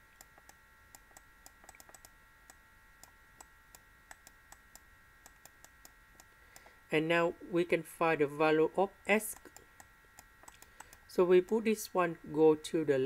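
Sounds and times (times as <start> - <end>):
faint irregular handwriting clicks: 0.0 - 6.8, 9.3 - 11.8
faint steady high whine: 0.0 - 13.0.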